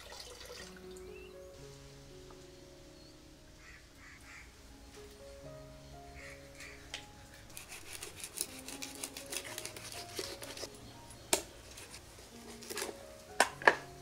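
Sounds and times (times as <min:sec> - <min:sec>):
soft background music: 0:00.0 - 0:14.0
knife cutting fish head: 0:07.4 - 0:10.7, 0:11.3 - 0:13.0.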